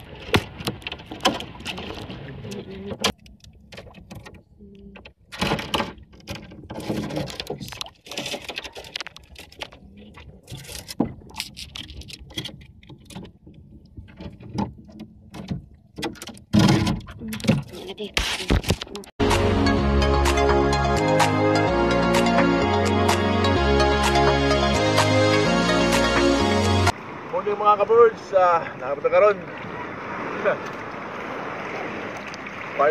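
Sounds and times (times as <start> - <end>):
wet fishing net rustling and knocking: 0.0 - 2.4.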